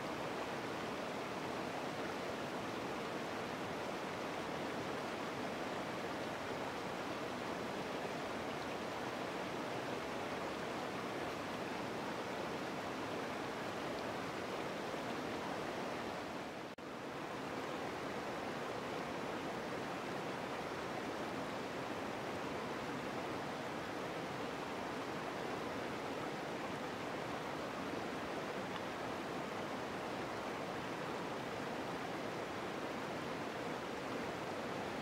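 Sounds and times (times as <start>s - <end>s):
creek rushing over boulders: 0.0s - 35.0s.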